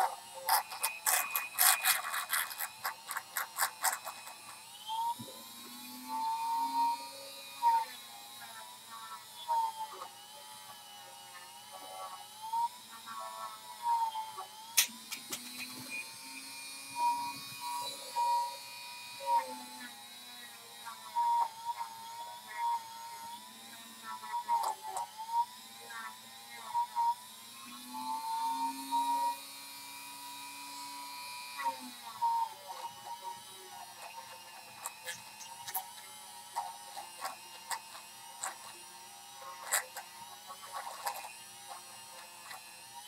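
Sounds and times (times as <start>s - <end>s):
rotary tool grinding: 0.0s - 43.0s
rotary tool whining: 0.0s - 43.0s.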